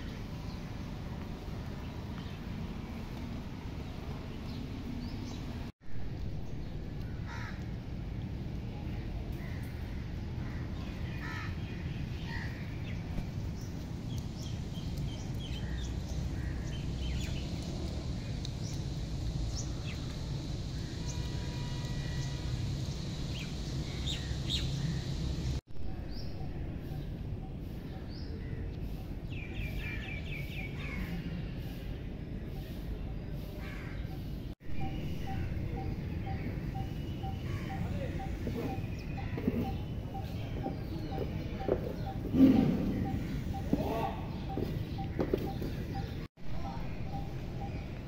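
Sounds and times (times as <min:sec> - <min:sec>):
birds chirping and calling: 0:22.2 - 0:48.0.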